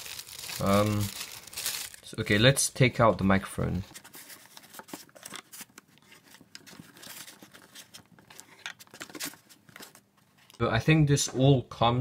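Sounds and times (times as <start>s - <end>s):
packaging rustling and scraping: 0.0s - 2.4s, 3.7s - 10.6s.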